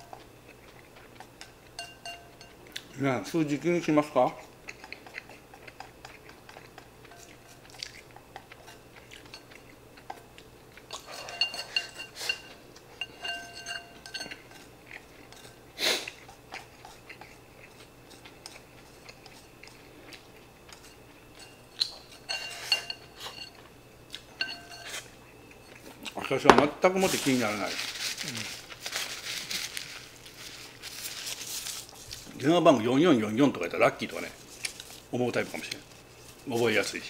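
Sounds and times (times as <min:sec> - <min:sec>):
chewing: 0:00.0 - 0:02.9, 0:04.0 - 0:26.2, 0:34.2 - 0:37.0
sharp knock: 0:26.5 - 0:26.8.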